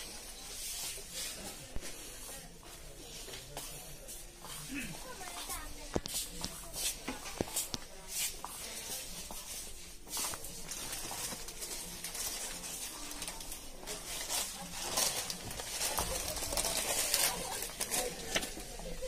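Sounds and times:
murmur of shop noise: 0:00.0 - 0:19.0
plastic packets crinkling: 0:10.3 - 0:19.0.

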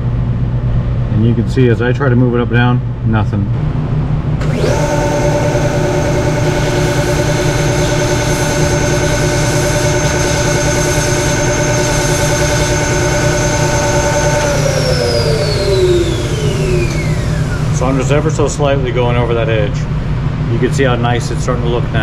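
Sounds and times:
metal shaft grinding on wheel: 0:04.4 - 0:18.0
bench grinder running: 0:04.4 - 0:18.5
grinder wheel spinning down: 0:04.4 - 0:18.6.

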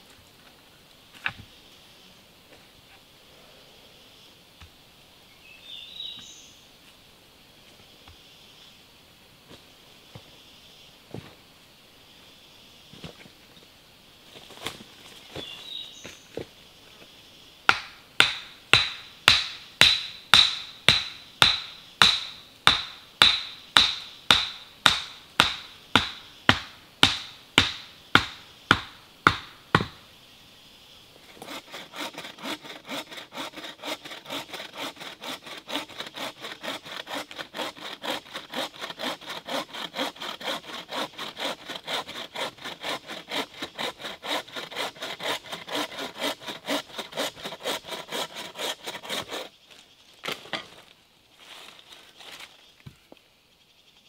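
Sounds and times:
bow saw cutting a log: 0:17.7 - 0:30.0, 0:31.2 - 0:49.6
chopping blows into wood: 0:17.7 - 0:30.0.

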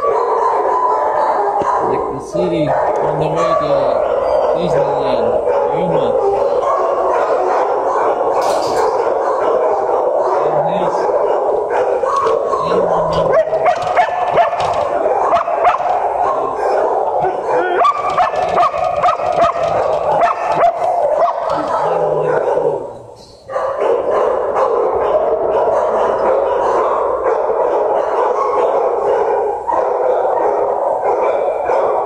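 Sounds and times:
many dogs barking and yipping: 0:00.0 - 0:32.0.

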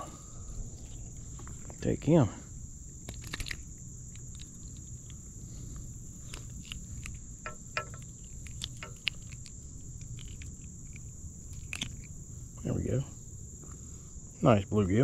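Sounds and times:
insects trilling: 0:00.0 - 0:15.0
handling clicks and taps: 0:06.3 - 0:09.5.

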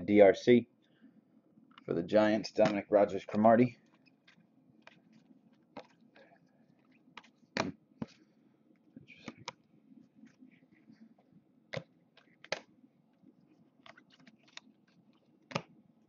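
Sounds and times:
cards clicking and tapping: 0:02.6 - 0:06.0, 0:07.2 - 0:08.2, 0:11.7 - 0:12.7, 0:13.8 - 0:15.8.

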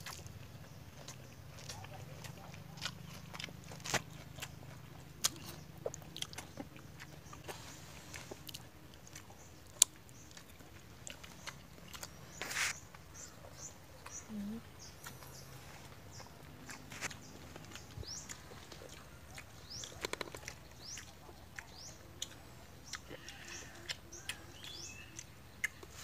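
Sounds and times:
faint low hum: 0:00.0 - 0:26.0
soft chewing: 0:00.0 - 0:26.0
short rustle: 0:12.4 - 0:12.8.

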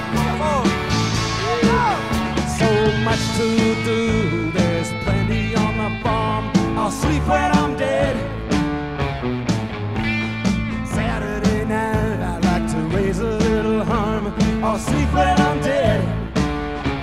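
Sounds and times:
pitch-bending lead line: 0:00.0 - 0:05.9
rock music: 0:00.0 - 0:17.0
steady drum beat: 0:00.0 - 0:17.0.

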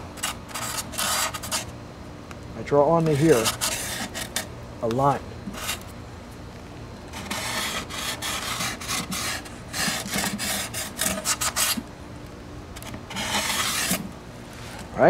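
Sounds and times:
marker strokes along metal ruler: 0:00.2 - 0:01.7, 0:03.0 - 0:04.5, 0:05.5 - 0:05.8, 0:07.1 - 0:11.8, 0:13.1 - 0:14.1.

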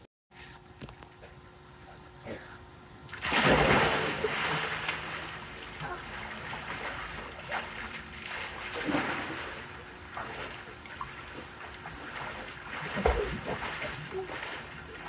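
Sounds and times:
water splashing from swimming: 0:03.1 - 0:15.0.

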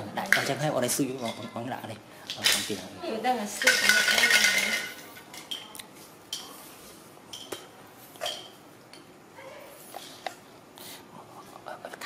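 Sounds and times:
plastic toys clicking on tile floor: 0:03.5 - 0:05.6.

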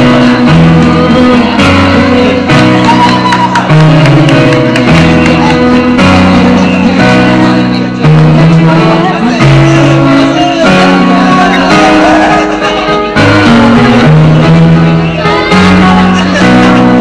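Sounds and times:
girls singing into microphones: 0:00.0 - 0:04.7
keyboard chords: 0:00.0 - 0:17.0.

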